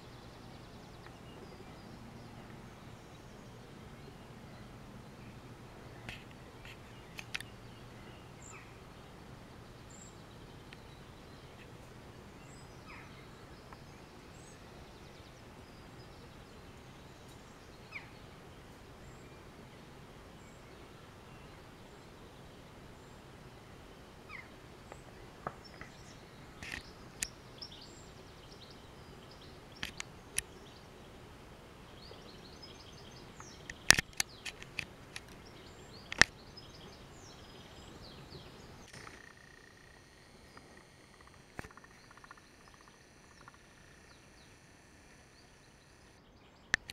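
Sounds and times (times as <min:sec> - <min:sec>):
sharp clicks: 0:29.8 - 0:30.5, 0:33.4 - 0:35.5, 0:38.8 - 0:45.2
bird chirps: 0:31.9 - 0:46.9.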